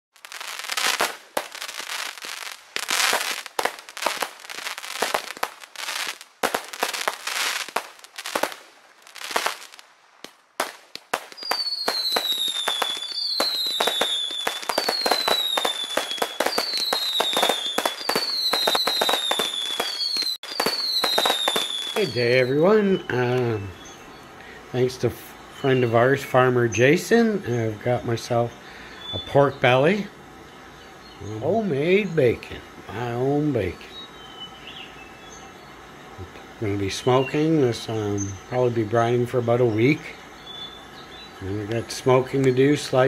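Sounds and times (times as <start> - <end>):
fireworks crackling and popping: 0.1 - 24.0, 41.0 - 43.0
falling firework whistle: 0.2 - 24.0.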